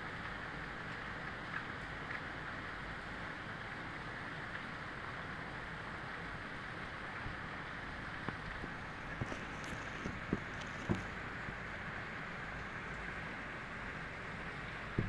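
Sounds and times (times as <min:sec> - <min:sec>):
steady rain hiss: 0:00.0 - 0:15.0
faint rain drop ticks: 0:00.1 - 0:05.3.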